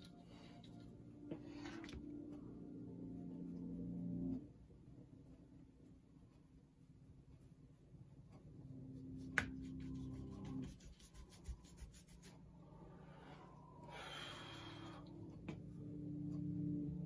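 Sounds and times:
paintbrush scrubbing on paper: 9.0s - 12.5s.

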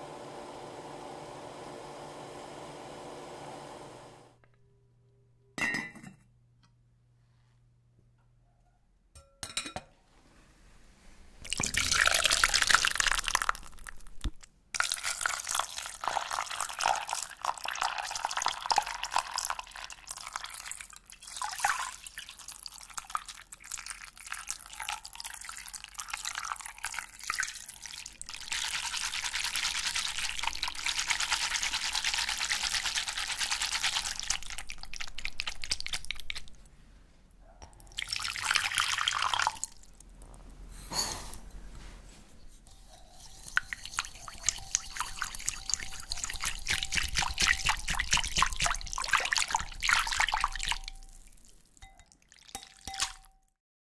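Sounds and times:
water pouring through strainer: 11.4s - 14.0s, 14.8s - 36.6s, 37.9s - 39.9s, 43.2s - 53.3s
water dripping and trickling: 43.6s - 53.3s.

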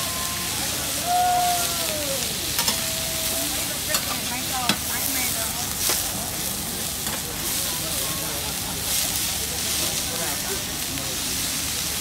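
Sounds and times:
noodles sizzling on a griddle: 0.0s - 12.0s
spatula clacks on griddle: 2.6s - 2.8s, 3.9s - 5.0s, 7.0s - 7.2s.

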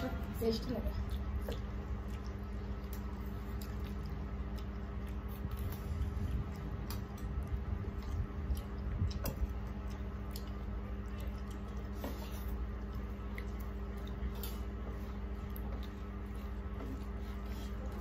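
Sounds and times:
rice mixed by hand on plates: 0.0s - 18.0s
steady low hum: 0.0s - 18.0s.

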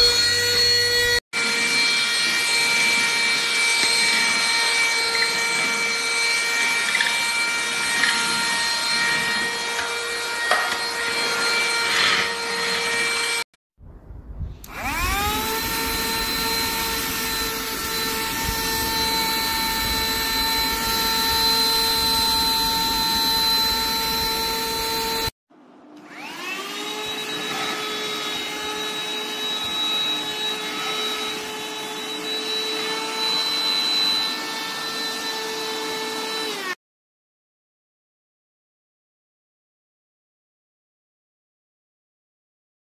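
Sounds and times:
vacuum cleaner whine: 0.0s - 13.4s, 14.6s - 25.3s, 25.9s - 36.8s.

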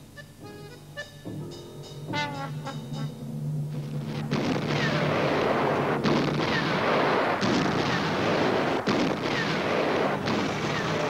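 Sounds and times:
steady low hum: 0.0s - 11.0s
artillery shell bursts: 4.1s - 11.0s.

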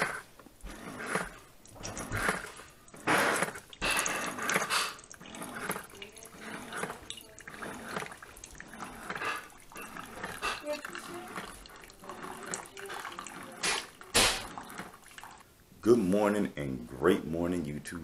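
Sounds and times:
coffee splashing into a cup: 1.5s - 15.5s.

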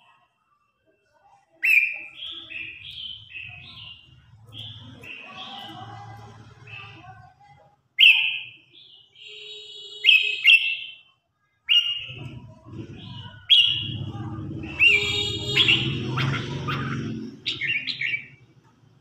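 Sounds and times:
bird singing whistled phrases: 1.6s - 5.7s, 11.7s - 12.1s.

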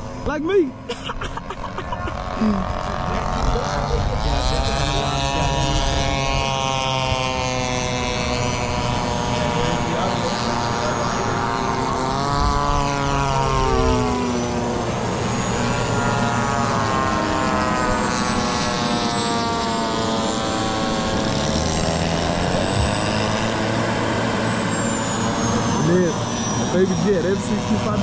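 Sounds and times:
model propeller planes droning: 0.0s - 28.0s
model turbine jet whine: 0.0s - 28.0s.

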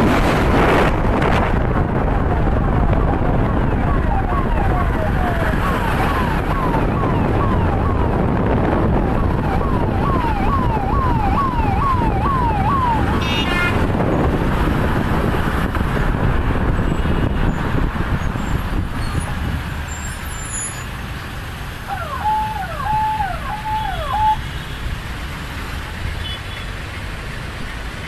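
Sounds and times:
traffic noise: 0.0s - 28.0s
police siren yelping: 2.1s - 13.3s, 21.8s - 24.4s.

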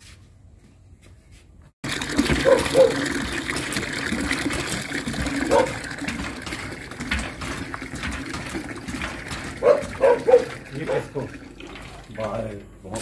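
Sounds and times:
water pouring into metal bucket: 1.8s - 13.0s.

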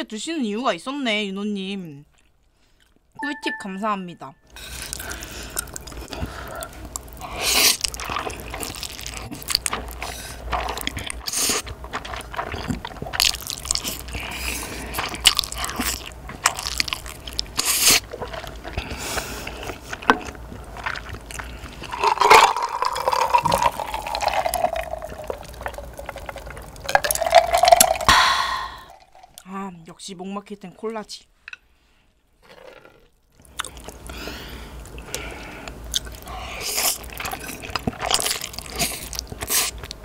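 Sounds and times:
chewing: 2.1s - 3.1s, 4.6s - 28.2s, 32.4s - 40.0s
noodles slurped: 4.6s - 29.4s, 34.9s - 40.0s
gulps of drink: 21.9s - 29.4s.

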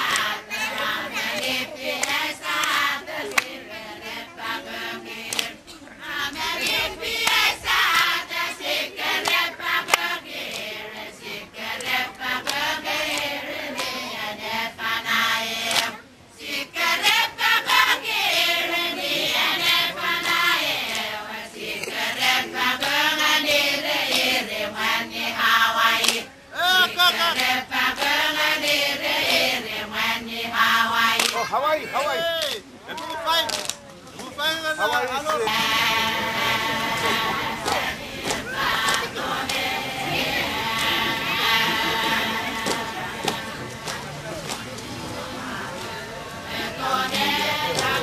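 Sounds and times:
sharp hand claps: 0.0s - 3.6s, 5.3s - 5.6s, 6.6s - 7.5s, 9.1s - 10.7s, 11.7s - 14.0s, 15.6s - 16.0s, 20.2s - 21.1s, 26.0s - 26.2s, 27.4s - 28.2s, 31.1s - 31.5s, 32.4s - 34.3s, 36.4s - 39.6s, 40.7s - 44.9s, 47.1s - 48.0s
women chanting: 0.0s - 32.2s, 34.7s - 44.4s, 45.0s - 48.0s.

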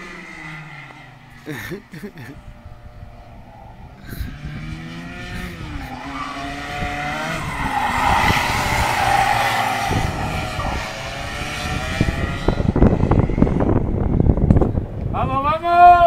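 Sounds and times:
kart engines braking and accelerating: 0.0s - 14.9s.

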